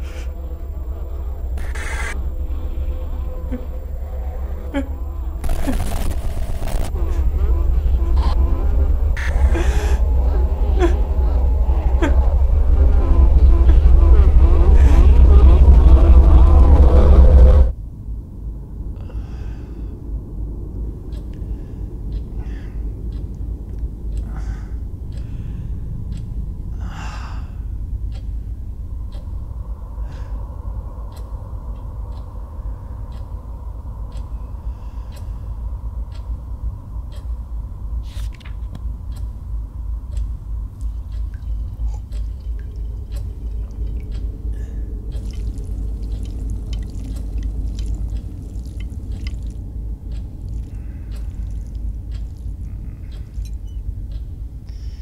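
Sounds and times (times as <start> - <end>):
steady low rumble: 0.0 - 55.0
clicks and crackles: 5.4 - 7.0.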